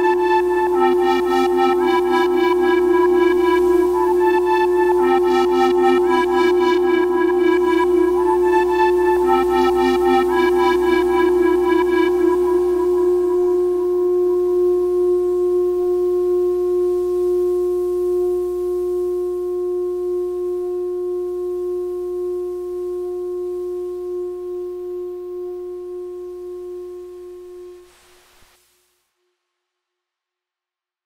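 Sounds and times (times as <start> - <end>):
held synthesizer note: 0.0 - 14.2
low hum: 0.0 - 15.0.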